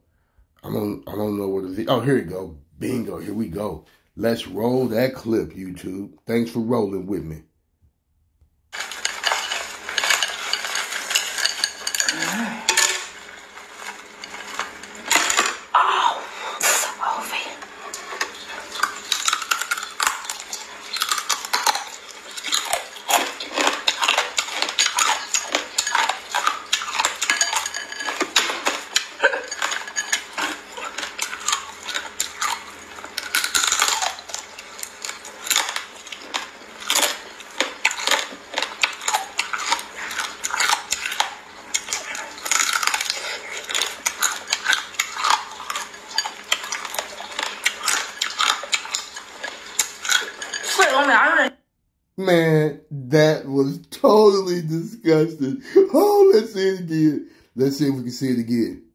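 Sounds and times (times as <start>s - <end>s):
crabs being crunched and chewed: 8.7s - 15.7s, 16.8s - 50.9s
shells clattering against glass bowl: 8.8s - 13.2s, 23.6s - 32.4s, 49.8s - 50.9s.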